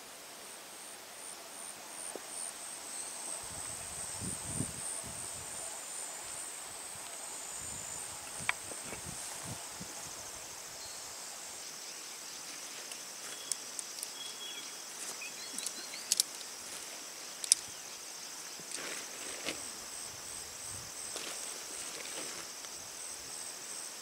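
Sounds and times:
insects chirring: 0.0s - 24.0s
sharp clicks: 15.5s - 16.5s.

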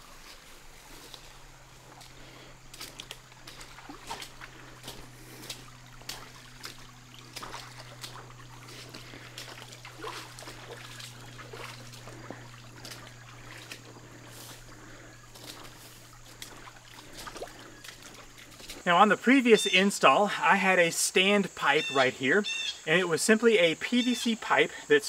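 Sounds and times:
footsteps through brush: 0.0s - 18.9s
steady low hum: 0.0s - 23.0s
creek trickling: 0.0s - 25.0s.

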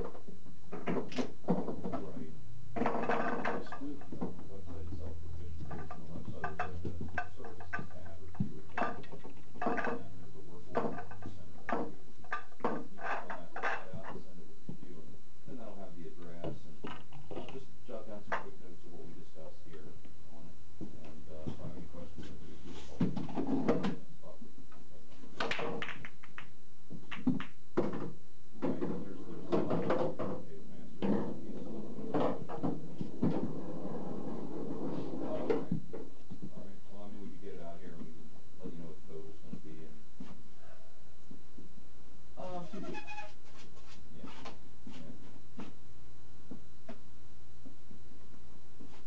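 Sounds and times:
low steady hum: 0.0s - 49.0s
pool balls clacking: 2.8s - 4.5s, 5.6s - 10.0s, 10.7s - 14.2s, 25.4s - 30.4s
cue ball cracking into balls: 25.4s - 28.1s
balls knocking on cushions: 25.4s - 30.4s.

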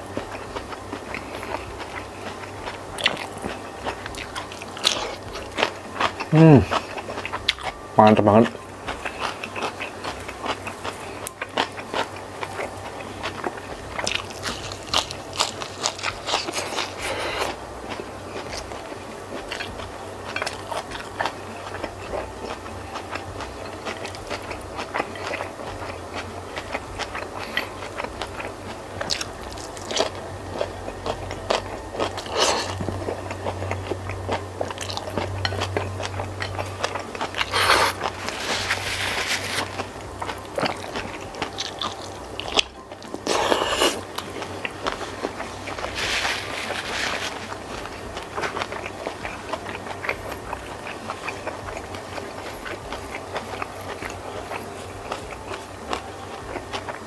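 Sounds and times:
chewing and crunchy bites: 0.0s - 57.0s.

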